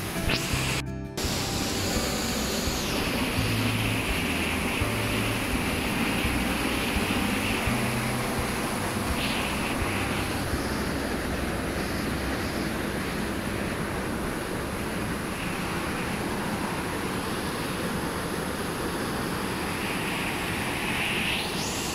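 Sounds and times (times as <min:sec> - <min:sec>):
waterfall rushing over rock: 0:00.0 - 0:21.9.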